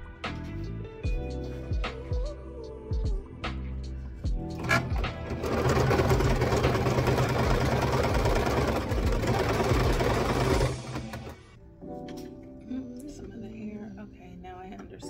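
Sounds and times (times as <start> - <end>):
electric sewing machine running: 4.6 - 11.6.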